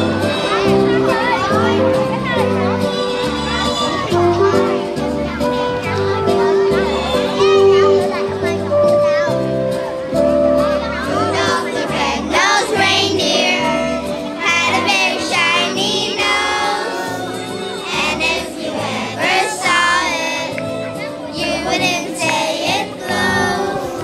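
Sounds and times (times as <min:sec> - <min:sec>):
instrumental accompaniment with bass line: 0:00.0 - 0:24.0
children singing together: 0:11.0 - 0:24.0.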